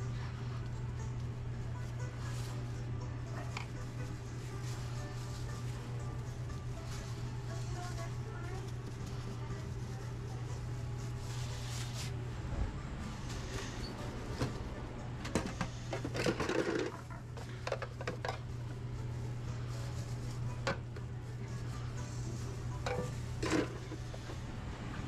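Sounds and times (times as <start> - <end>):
steady low hum: 0.0 - 25.0
metal pans knocking and scraping: 15.3 - 18.4.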